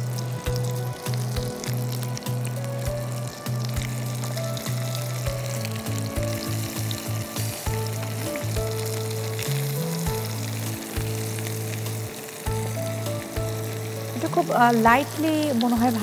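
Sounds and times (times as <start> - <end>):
background music with low notes: 0.0 - 16.0
prawns sizzling in hot oil: 0.0 - 16.0.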